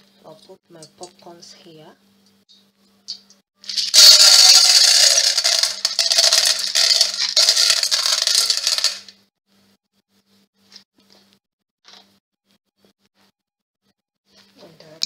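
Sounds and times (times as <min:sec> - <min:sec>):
popcorn kernels rattling into a pot: 0:03.6 - 0:09.2.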